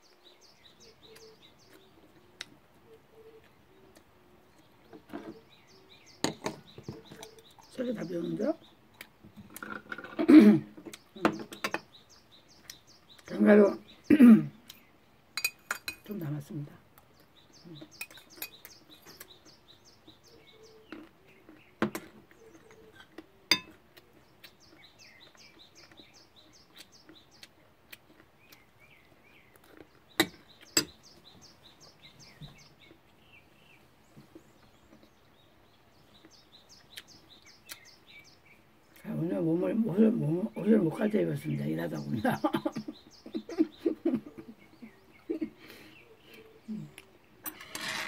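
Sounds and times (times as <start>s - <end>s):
birds chirping: 0.0s - 48.0s
spoon clinking against glass cup: 15.4s - 16.0s, 23.5s - 23.7s.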